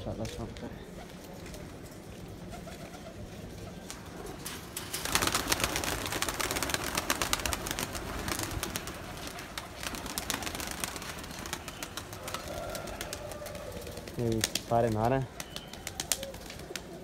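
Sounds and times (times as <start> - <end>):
pigeon wings flapping and clapping: 3.8 - 17.0.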